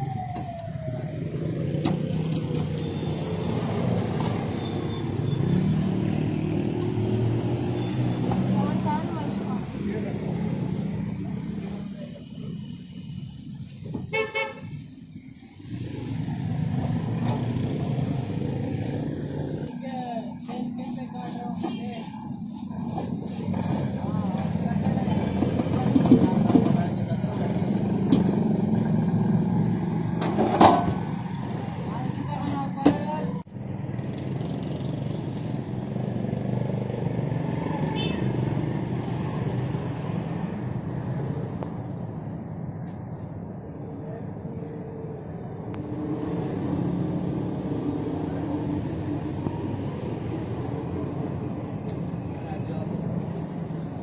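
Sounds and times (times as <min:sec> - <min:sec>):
street noise: 0:00.0 - 0:54.0
vehicle horn toots: 0:14.1 - 0:14.8, 0:37.9 - 0:38.3.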